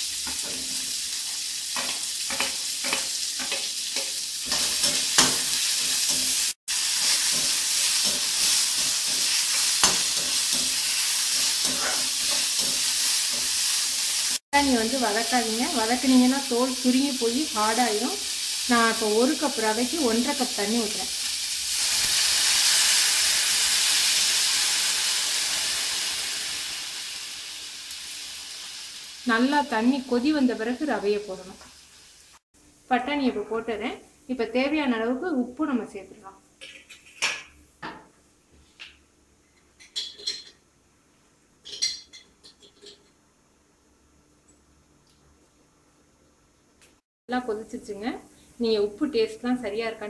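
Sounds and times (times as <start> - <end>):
water hissing in hot pan: 0.0 - 32.4
utensil clinking on metal cookware: 39.6 - 40.6, 41.6 - 43.2.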